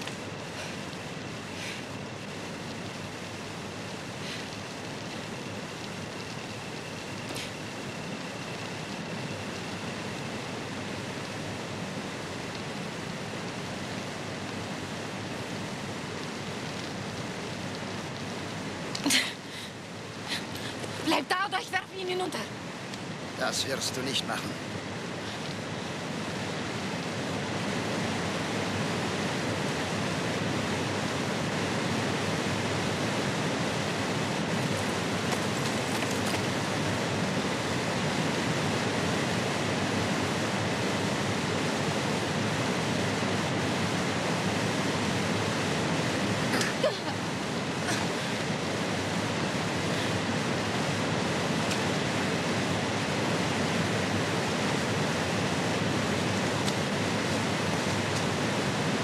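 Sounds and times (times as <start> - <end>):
fast-flowing river rushing: 22.5 - 59.0.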